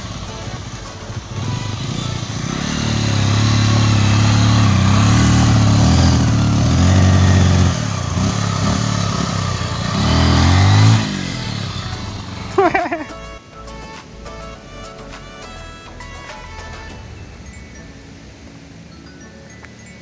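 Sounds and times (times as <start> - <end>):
motorcycle engine under load: 0.0 - 13.1.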